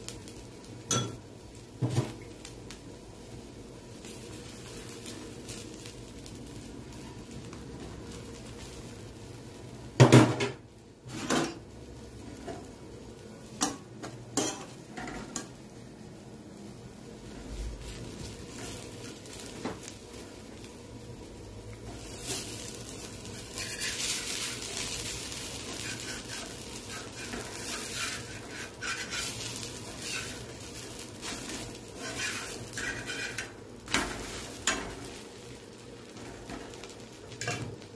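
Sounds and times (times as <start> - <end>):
dosa sizzling: 0.0 - 37.9
metal spatula scraping a griddle: 18.0 - 19.9, 21.9 - 35.2, 36.2 - 37.8.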